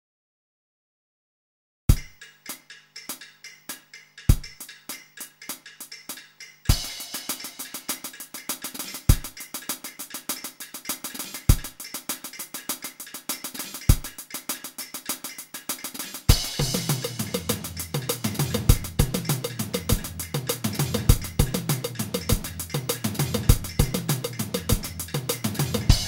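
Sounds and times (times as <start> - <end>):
drum kit beat: 1.9 - 26.0
bass line: 16.6 - 26.0.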